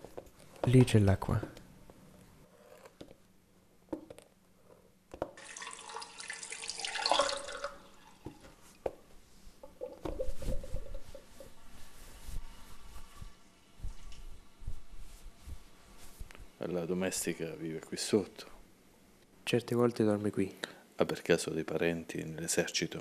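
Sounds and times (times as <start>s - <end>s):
tap water running into sink: 5.4s - 8.4s.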